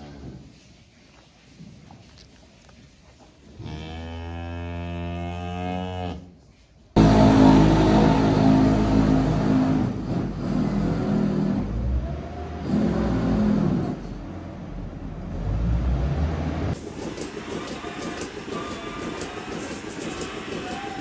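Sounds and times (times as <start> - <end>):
diesel engine revving: 7.0 - 16.8.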